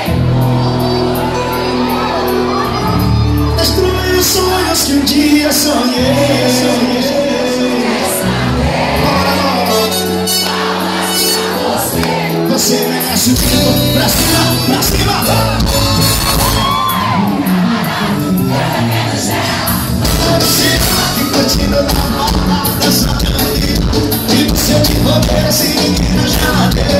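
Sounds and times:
crowd shouting and cheering: 0.0 - 26.9
live band music: 0.0 - 26.9
person singing: 11.1 - 16.7, 20.0 - 26.9.

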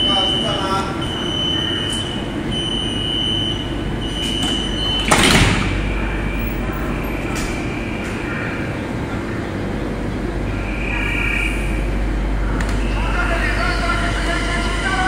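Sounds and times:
high warning beep: 0.0 - 5.2
train doors shutting with thud: 0.0 - 8.3.

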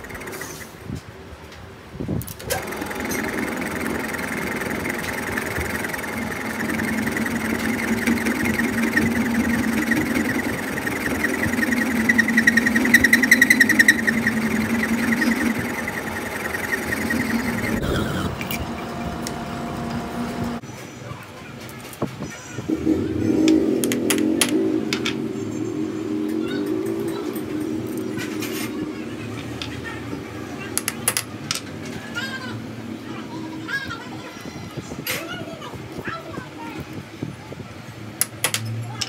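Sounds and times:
metal lathe humming and whining: 2.5 - 20.6.

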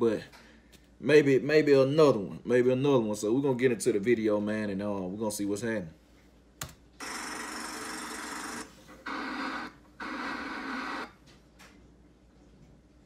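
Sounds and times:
television static hiss: 7.0 - 11.3.

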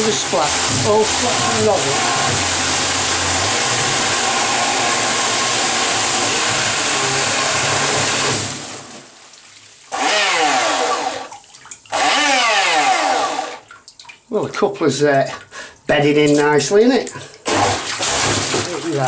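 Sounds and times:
electric motor whine: 0.0 - 8.5, 10.0 - 11.3, 12.0 - 13.6
churning water rush: 0.0 - 9.2, 9.9 - 13.8, 17.1 - 19.0.

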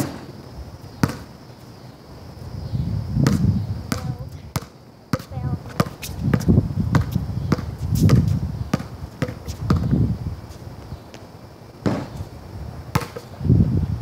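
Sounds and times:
basketball bouncing on concrete: 1.0 - 1.3, 3.2 - 10.0, 11.8 - 12.2, 12.9 - 13.3.

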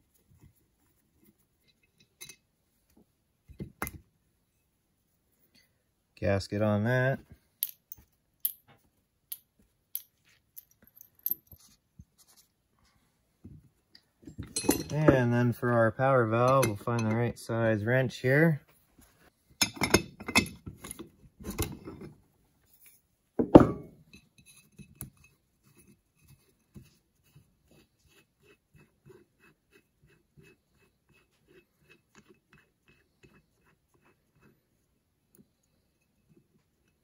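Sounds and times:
metal hand tools clinking: 14.4 - 15.2.

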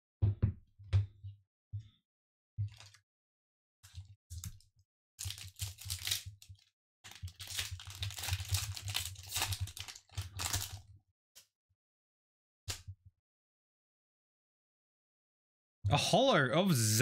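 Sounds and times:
foil wrapper tearing and crinkling: 5.2 - 10.8.

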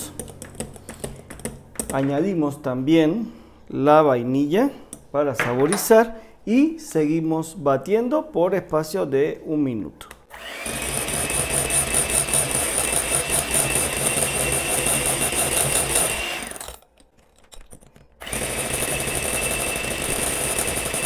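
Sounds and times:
electric hand mixer whining: 10.3 - 16.8, 18.2 - 21.0.

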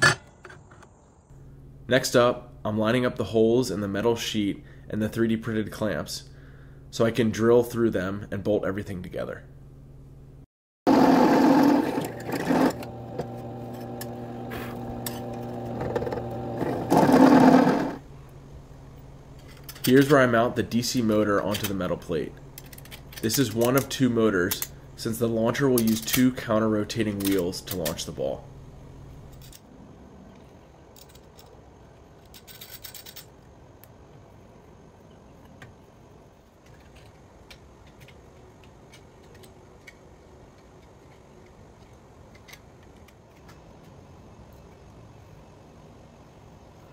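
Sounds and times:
drill bit grinding through sheet metal: 10.9 - 18.0
drill press motor humming: 10.9 - 18.0
metal bolts clinking: 19.4 - 20.4.

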